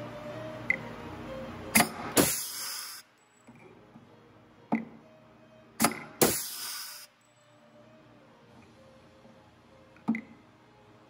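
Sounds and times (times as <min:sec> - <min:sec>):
air hiss: 0:01.8 - 0:03.1, 0:06.2 - 0:07.1.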